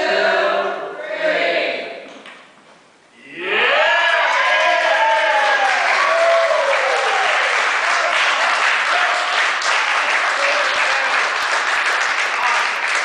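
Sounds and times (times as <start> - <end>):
people clapping and cheering: 3.4 - 13.0.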